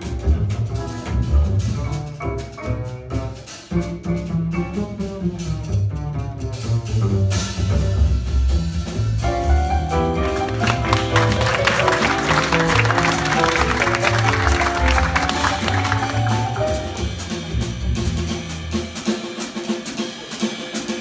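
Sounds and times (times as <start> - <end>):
double bass notes: 0.0 - 19.0
jazz piano trio playing: 0.0 - 21.0.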